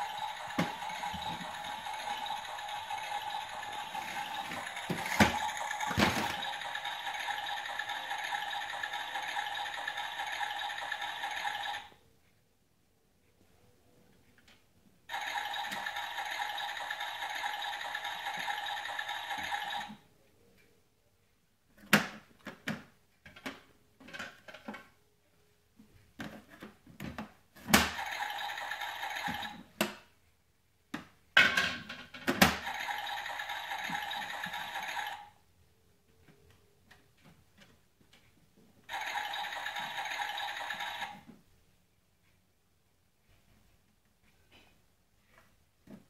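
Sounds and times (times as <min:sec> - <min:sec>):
toy washing machine running: 0:00.0 - 0:12.0, 0:15.1 - 0:20.0, 0:27.8 - 0:29.7, 0:32.4 - 0:35.4, 0:38.9 - 0:41.3.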